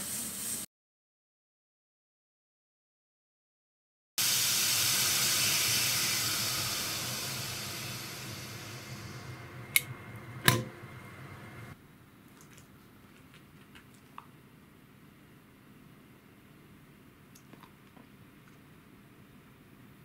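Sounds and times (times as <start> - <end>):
steam hissing from pressure cooker: 0.0 - 0.7, 4.2 - 11.8.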